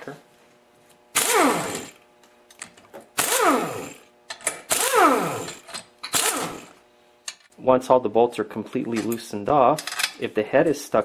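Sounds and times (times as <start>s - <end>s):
air impact wrench bursts: 1.1s - 2.0s, 3.2s - 6.8s.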